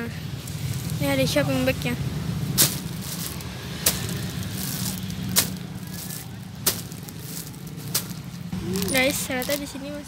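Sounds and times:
plastic packaging crackling: 0.4 - 1.3, 2.5 - 9.8.

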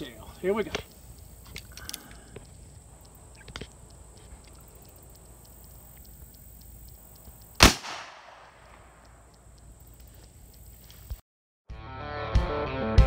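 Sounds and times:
revolver gunshot with echo: 7.6 - 9.0.

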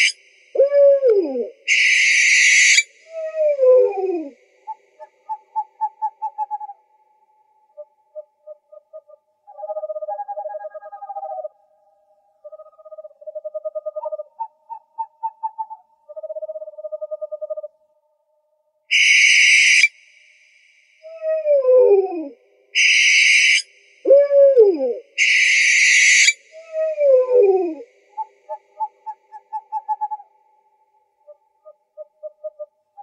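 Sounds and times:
owl screeches: 0.0 - 4.3, 18.9 - 19.9, 22.8 - 27.5
rapid owl hoots: 0.0 - 6.8, 7.7 - 11.6, 12.4 - 17.7, 21.1 - 30.4, 31.2 - 33.0.

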